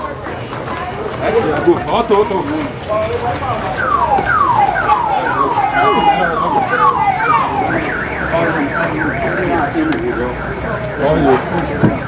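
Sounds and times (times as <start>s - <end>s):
electronic alarm siren: 3.5s - 12.0s.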